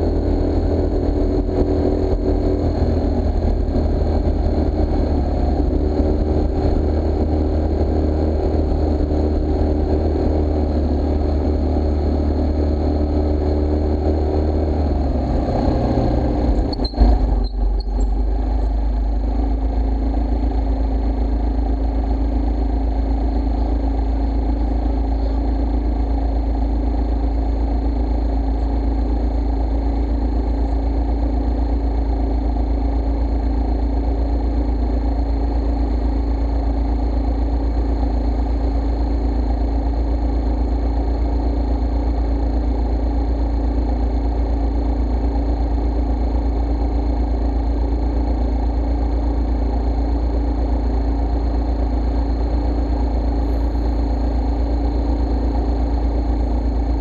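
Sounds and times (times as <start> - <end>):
scooter engine idling: 14.7 - 57.0.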